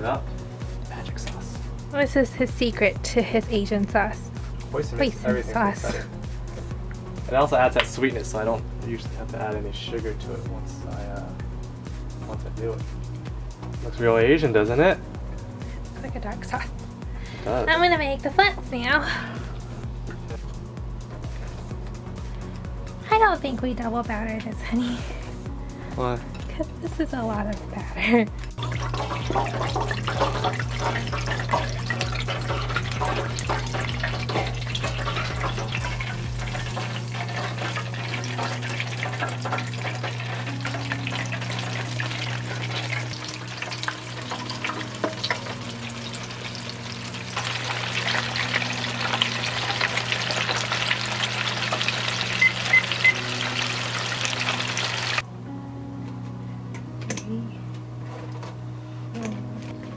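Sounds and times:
oil crackling and sizzling: 0:28.4 - 0:55.2.

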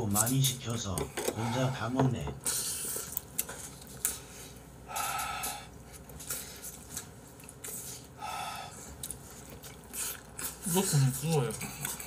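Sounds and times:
noodles slurped: 0:08.8 - 0:12.0.

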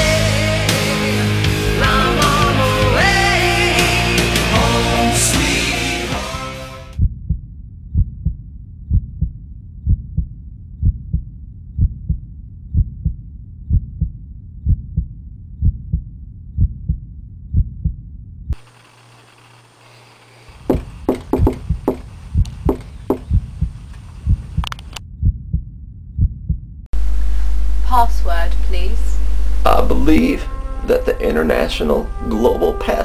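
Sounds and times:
heartbeat double thump: 0:07.0 - 0:18.6, 0:20.6 - 0:26.9
knocking on a door: 0:20.6 - 0:23.7.

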